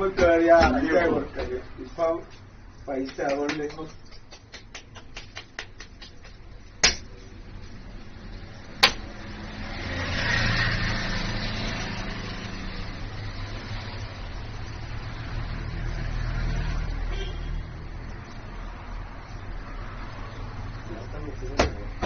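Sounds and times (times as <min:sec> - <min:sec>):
sharp knocks: 0:04.4 - 0:07.2, 0:08.8 - 0:09.1
motor vehicle passing: 0:06.4 - 0:22.0.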